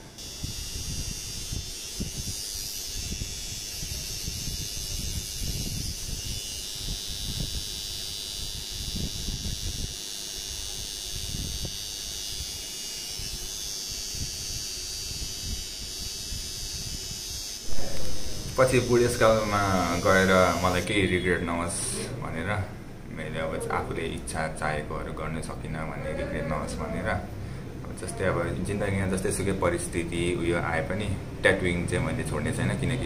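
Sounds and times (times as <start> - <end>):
tattoo machine whirring: 0.0 - 21.8
low rumbles: 17.7 - 19.2.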